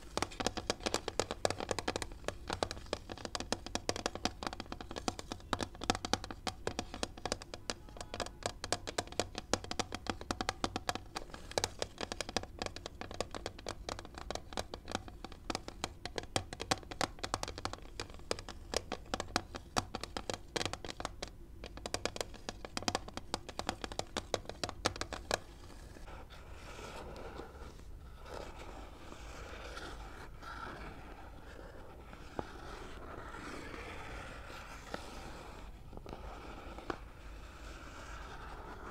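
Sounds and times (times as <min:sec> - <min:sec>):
fingernails tapping on plastic: 0:00.0 - 0:26.3
scratching and rubbing on plastic: 0:00.0 - 0:38.9.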